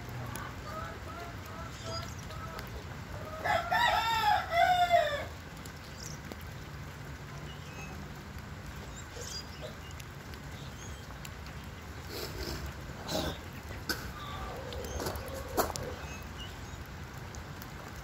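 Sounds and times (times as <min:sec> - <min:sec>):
low background noise: 0:00.0 - 0:18.0
rooster crowing: 0:03.2 - 0:05.3.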